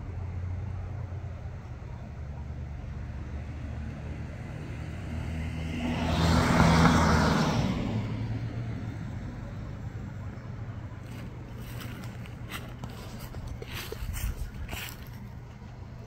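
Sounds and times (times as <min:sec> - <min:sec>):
car passing by: 0:03.1 - 0:09.8.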